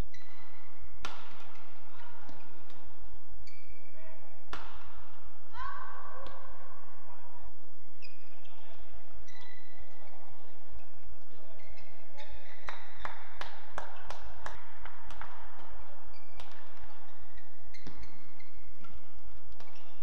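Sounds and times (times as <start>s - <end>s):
shoes squeaking on court: 0.0s - 4.8s, 8.0s - 20.0s
rackets hitting shuttlecock: 0.1s - 5.3s, 11.2s - 20.0s.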